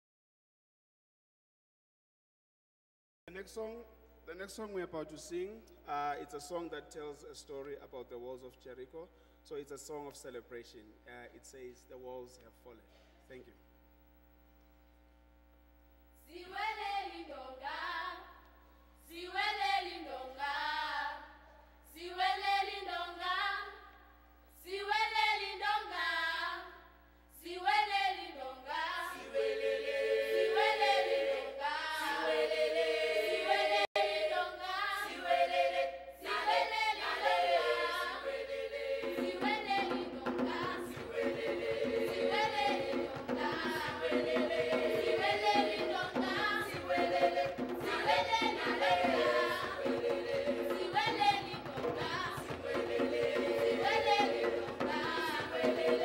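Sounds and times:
children's choir singing: 0:16.3 - 0:18.3, 0:19.1 - 0:21.3, 0:21.9 - 0:23.9, 0:24.6 - 0:26.8, 0:27.4 - 0:56.0
djembe hand drums: 0:37.6 - 0:56.0.

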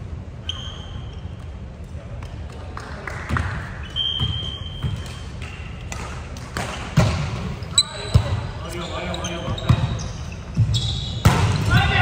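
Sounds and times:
players' voices in echoing hall: 0:00.0 - 0:12.0
sneakers squeaking on floor: 0:00.3 - 0:01.7, 0:03.8 - 0:12.0.

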